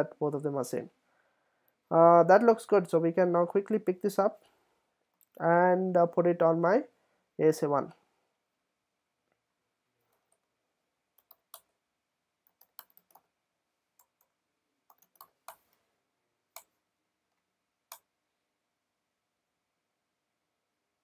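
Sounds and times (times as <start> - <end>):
keyboard and mouse clicks: 11.2 - 11.8, 12.4 - 13.3, 14.0 - 15.8, 16.5 - 16.8, 17.9 - 18.1.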